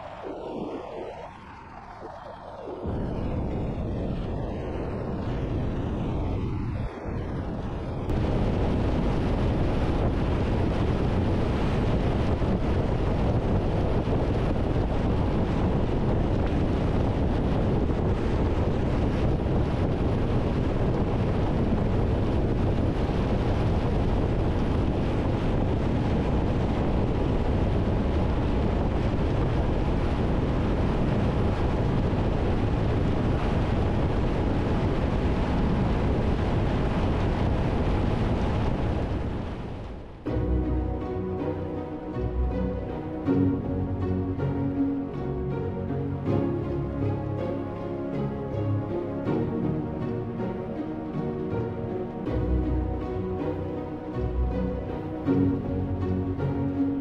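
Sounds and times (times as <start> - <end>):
motorcycle engine and road noise: 0.0 - 40.3
wind rush on microphone: 0.0 - 57.0.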